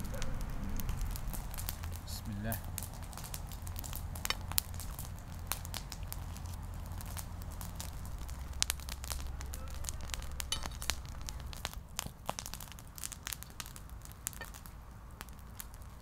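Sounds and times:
bonfire crackling and popping: 0.0 - 16.0.

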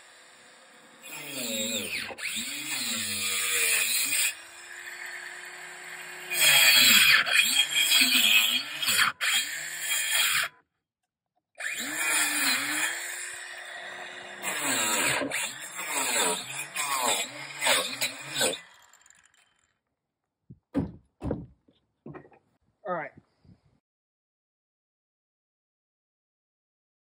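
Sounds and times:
saw blade rasping through board: 0.0 - 10.5, 11.6 - 19.4.

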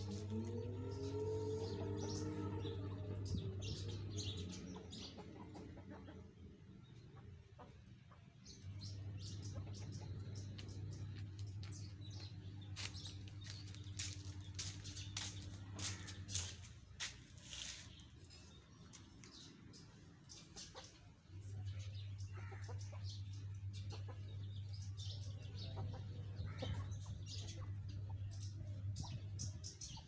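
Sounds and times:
small birds chirping: 0.0 - 30.0
chickens clucking: 3.6 - 17.7, 20.3 - 30.0
steady low hum: 18.1 - 30.0.

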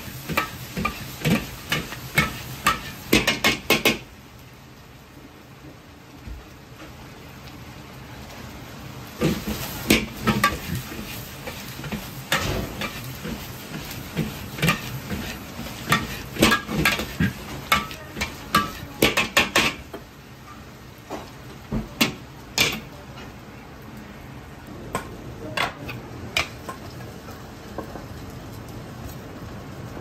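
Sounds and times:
frying hiss: 0.0 - 30.0
ladle clanking on wok: 9.2 - 20.0.

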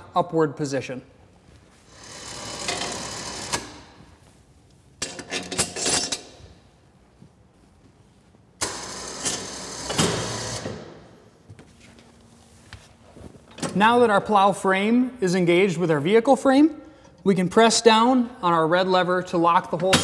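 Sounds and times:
electric winch running: 1.9 - 3.9, 8.6 - 10.8.

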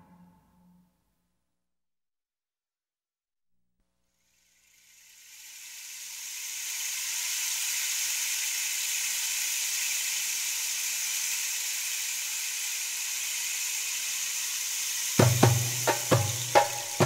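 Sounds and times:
steady hiss: 4.1 - 17.0.

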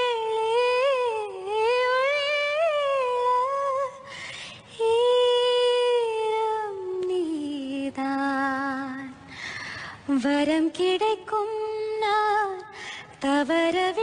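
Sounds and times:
audible breath: 9.3 - 10.1.

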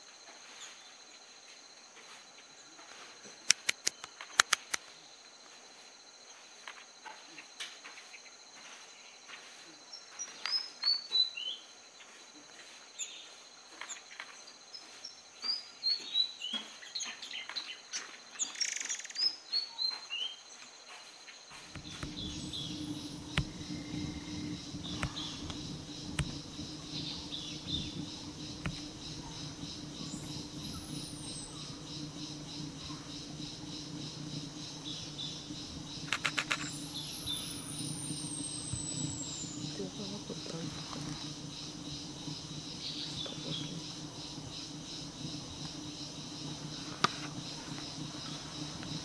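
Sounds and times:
high insect drone: 0.0 - 49.0
low hum: 21.6 - 49.0.

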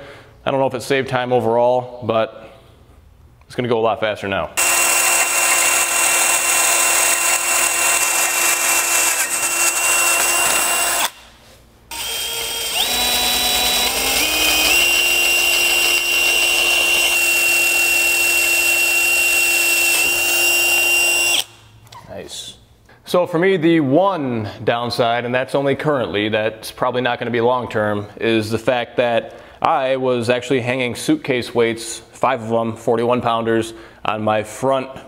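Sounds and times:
cordless drill boring through steel: 4.6 - 11.2, 11.9 - 21.6.

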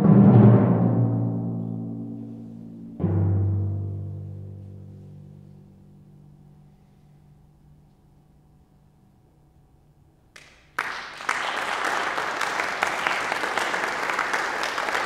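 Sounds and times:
audience applause: 10.4 - 15.0.

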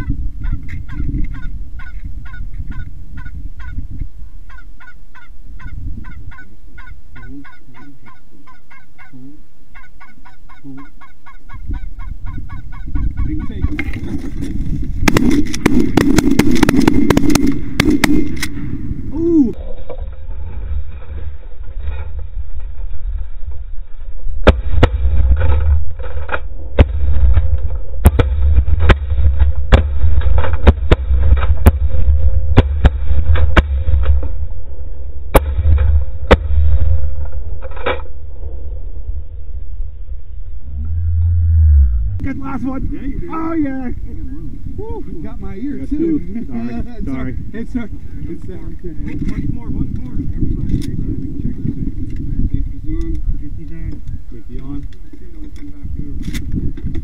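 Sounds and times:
wind rumble on microphone: 0.0 - 57.0
geese honking: 4.4 - 14.2
shotgun cracks: 15.0 - 18.7.

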